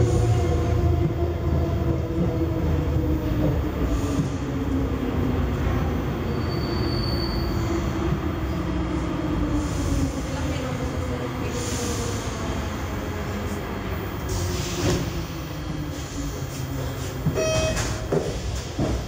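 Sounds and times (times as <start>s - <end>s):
wheel and brake squeal: 6.3s - 7.7s.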